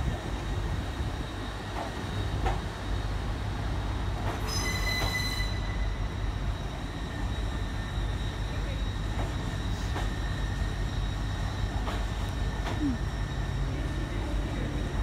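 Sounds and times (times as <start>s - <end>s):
train low rumble: 0.0s - 15.0s
shrill wheel squeal: 4.3s - 11.8s
steady wheel squeal: 4.4s - 6.0s.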